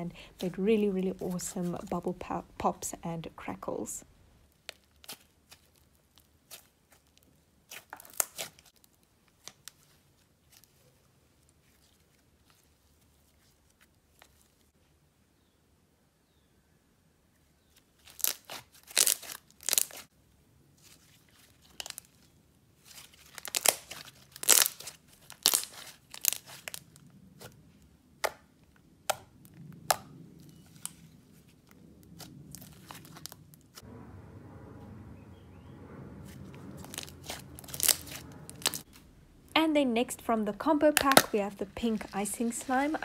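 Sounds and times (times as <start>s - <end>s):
slime popping and crackling: 4.5s - 9.8s, 18.0s - 20.1s, 22.9s - 27.5s, 32.0s - 33.6s, 36.8s - 39.0s, 40.8s - 43.0s
slime squishing: 4.5s - 14.6s, 20.8s - 28.3s, 29.0s - 33.8s, 36.2s - 39.2s.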